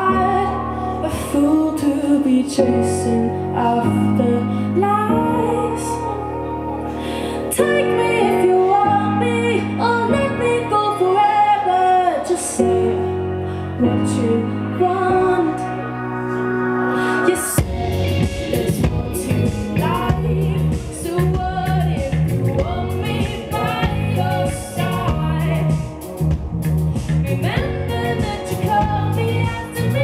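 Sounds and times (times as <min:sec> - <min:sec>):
woman singing: 0:00.0 - 0:16.0, 0:17.1 - 0:26.1, 0:27.4 - 0:30.0
held band chords: 0:14.8 - 0:30.0
drum kit beats and cymbals: 0:16.9 - 0:30.0.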